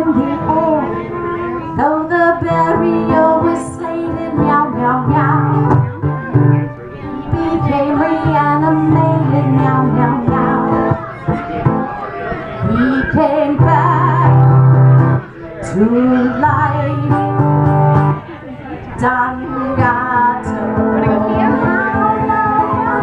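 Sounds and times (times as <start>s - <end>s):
woman singing: 0.0s - 1.0s, 1.7s - 6.0s, 7.2s - 10.9s, 12.6s - 14.9s, 15.6s - 17.9s, 19.0s - 23.0s
acoustic guitar: 0.0s - 23.0s.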